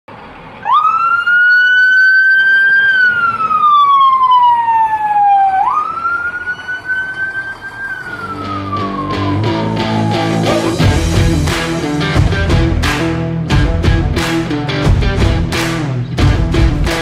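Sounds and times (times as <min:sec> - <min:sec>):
fire engine siren wailing: 0:00.5 - 0:11.3.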